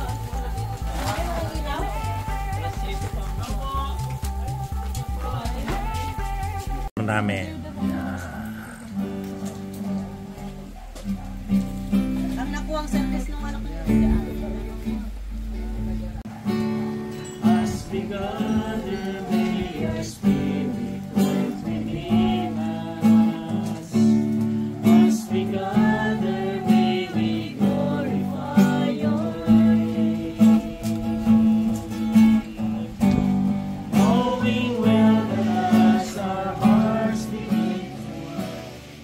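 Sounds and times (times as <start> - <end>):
person singing: 0.0 - 6.9, 17.4 - 39.0
acoustic guitar strumming: 0.0 - 39.0.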